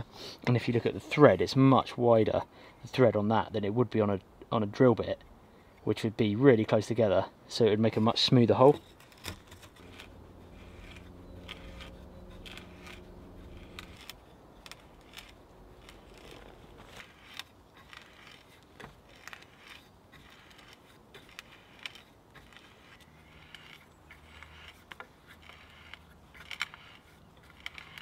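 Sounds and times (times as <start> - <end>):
hand auger cutting wood: 8.0 - 28.0
faint low hum: 8.7 - 18.4.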